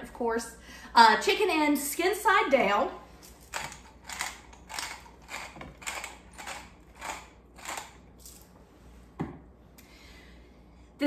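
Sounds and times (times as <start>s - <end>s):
pepper mill grinding: 3.2s - 8.5s.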